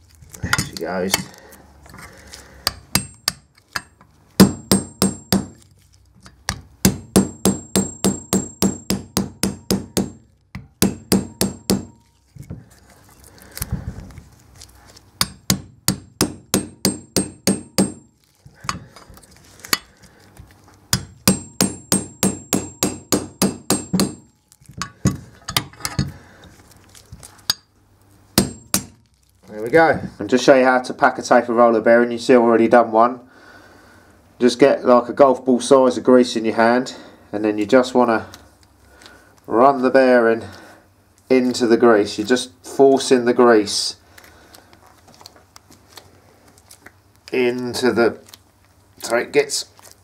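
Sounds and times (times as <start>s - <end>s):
hammer striking steel chisel: 2.6s - 5.6s, 6.2s - 12.0s, 15.2s - 18.9s, 20.9s - 26.1s, 28.4s - 29.0s.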